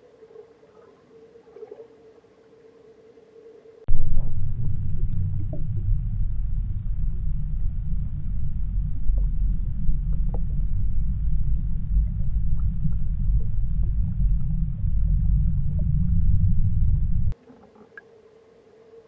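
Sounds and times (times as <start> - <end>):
underwater river rumble: 0.0 - 19.0
faint ticks: 17.4 - 18.8.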